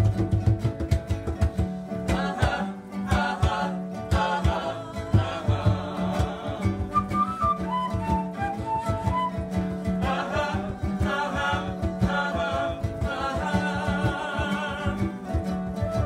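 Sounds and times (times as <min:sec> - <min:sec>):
acoustic guitar: 0:00.0 - 0:16.0
hand drum beat: 0:00.0 - 0:16.0
voices singing together: 0:02.0 - 0:16.0
small flute: 0:06.2 - 0:11.5, 0:15.7 - 0:16.0.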